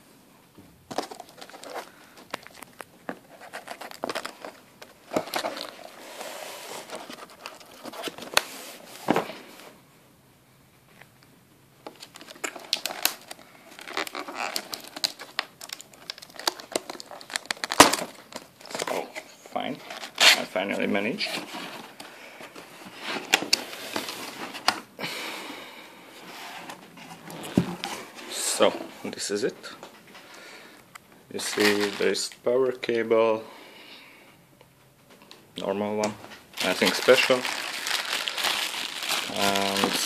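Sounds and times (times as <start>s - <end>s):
cardboard box rustling and scraping: 5.2s - 9.2s, 26.3s - 28.2s.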